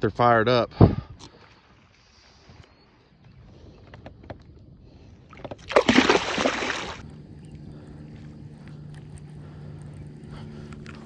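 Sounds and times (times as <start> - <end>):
steady low hum: 4.7 - 11.0
water lapping around kayak: 4.8 - 11.0
loud water splash: 5.7 - 7.0.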